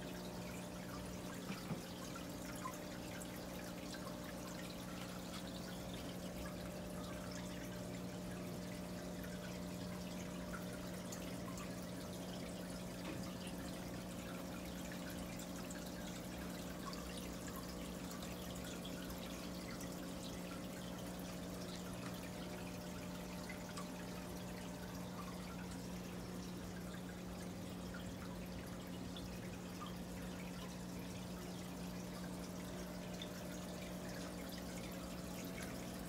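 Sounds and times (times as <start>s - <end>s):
filter motor hum: 0.0s - 36.0s
water trickling and dripping: 0.0s - 36.0s.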